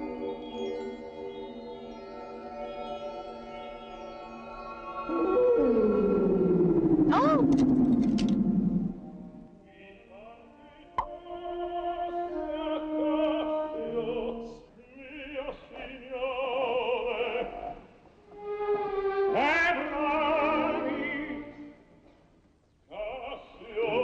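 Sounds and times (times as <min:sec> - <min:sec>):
operatic singing with vibrato: 0:03.4 - 0:07.5, 0:09.4 - 0:21.9, 0:22.9 - 0:24.0.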